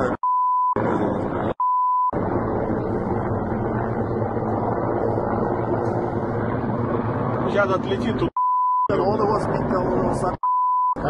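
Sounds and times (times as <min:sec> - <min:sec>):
helicopter rotors and engines drone: 0:00.0 - 0:10.4
censor bleep: 0:00.2 - 0:00.8, 0:08.4 - 0:08.9, 0:10.4 - 0:11.0.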